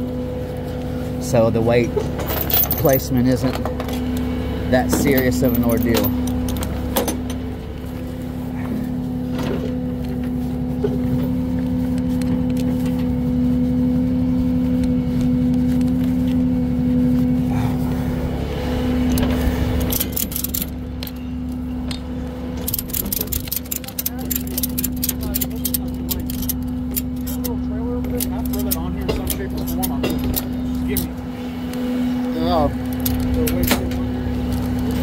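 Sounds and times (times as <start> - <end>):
diesel engine idling: 0.0 - 35.0
metallic clinks of strap hooks: 2.0 - 7.5, 19.1 - 22.0, 22.6 - 31.1.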